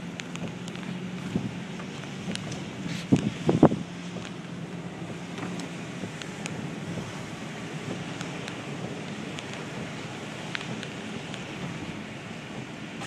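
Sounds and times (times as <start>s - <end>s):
low engine hum: 0.0s - 13.0s
tyre and wind noise: 0.0s - 13.0s
light ticks: 0.1s - 3.3s, 5.4s - 6.6s, 8.0s - 11.8s.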